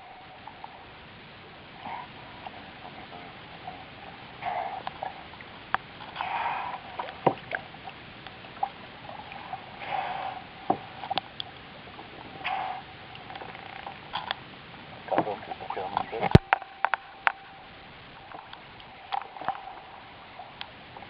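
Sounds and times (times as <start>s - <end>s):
whales blowing breathy puffs: 9.8s - 10.6s.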